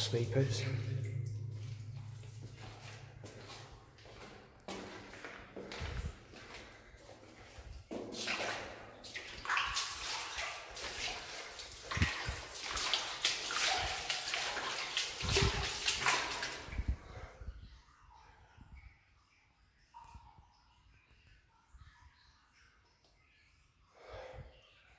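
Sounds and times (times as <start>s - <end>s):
footsteps splashing through water: 0.0s - 17.0s.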